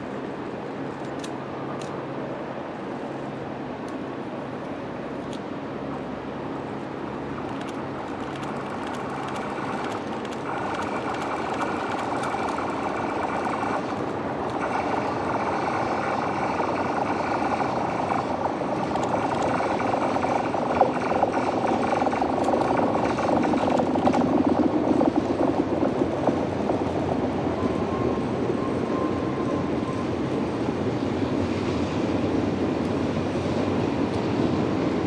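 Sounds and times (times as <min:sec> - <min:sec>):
train wheels rumbling on rail: 0:00.0 - 0:35.0
whining tones: 0:08.4 - 0:30.2.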